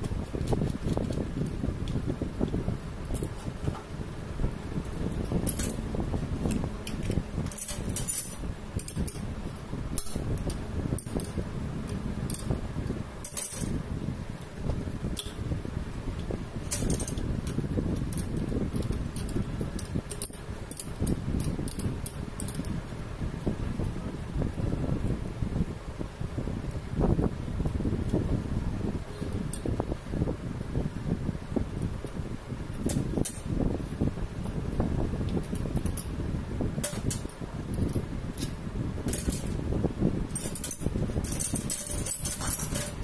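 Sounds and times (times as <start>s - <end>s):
metal parts and spanner clinking: 0.0s - 4.0s, 4.8s - 15.5s, 16.2s - 22.8s, 29.1s - 29.8s, 32.0s - 34.6s, 35.2s - 39.7s, 40.3s - 43.0s.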